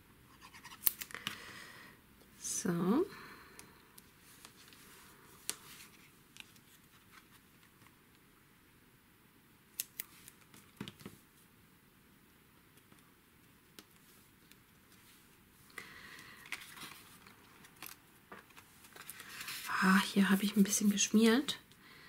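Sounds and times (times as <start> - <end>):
paper and card taps and rustles: 10.0 - 11.2.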